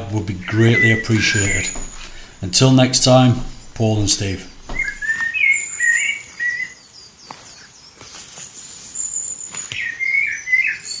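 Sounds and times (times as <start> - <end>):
birds singing: 0.0 - 11.0.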